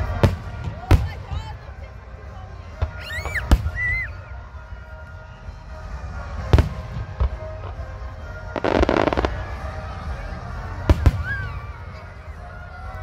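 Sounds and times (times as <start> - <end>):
low rumble of fireworks: 0.0 - 13.0
fireworks bursting: 6.4 - 9.7.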